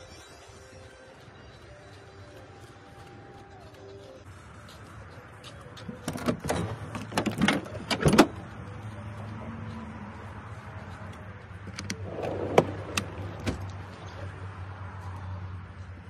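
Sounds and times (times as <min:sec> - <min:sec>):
drawer rolling on runners: 0:11.7 - 0:13.7
drawer stopping with a clunk: 0:11.8 - 0:13.6.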